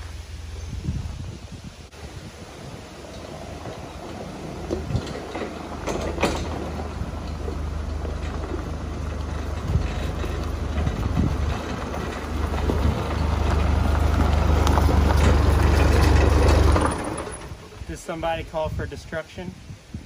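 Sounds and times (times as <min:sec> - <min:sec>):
forklift engine running: 0:01.9 - 0:17.8.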